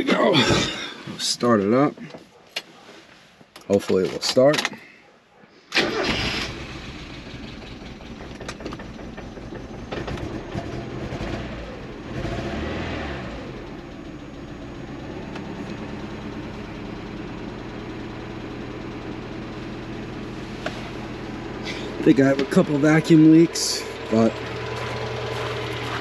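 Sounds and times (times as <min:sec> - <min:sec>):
car engine revving and idling: 0:06.4 - 0:26.0.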